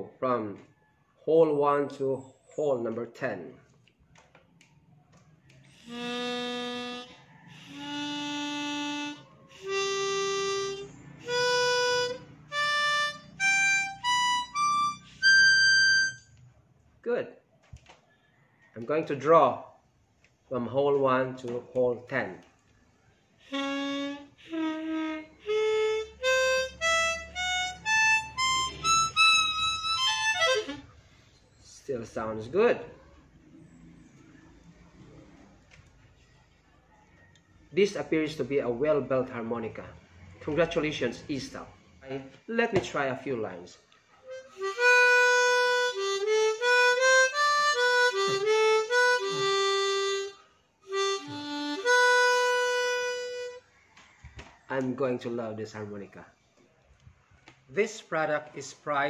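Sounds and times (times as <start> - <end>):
harmonica notes rising: 5.7 - 16.4, 23.4 - 31.3, 44.3 - 53.6.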